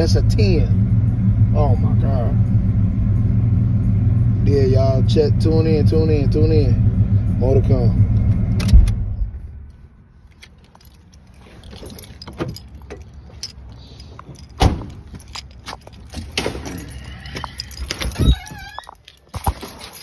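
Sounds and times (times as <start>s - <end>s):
clicks rattles and knocks: 10.3s - 20.0s.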